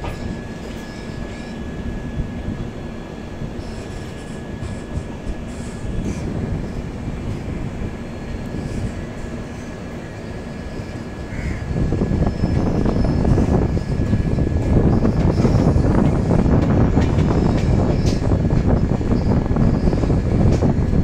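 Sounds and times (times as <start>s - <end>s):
high squeal: 0.0s - 2.1s, 8.6s - 16.0s, 17.2s - 20.2s
train wheels rumbling on rails: 0.0s - 21.0s.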